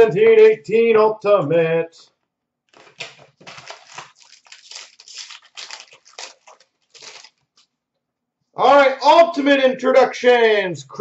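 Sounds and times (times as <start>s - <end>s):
plastic wrapping crinkling: 2.7s - 7.8s.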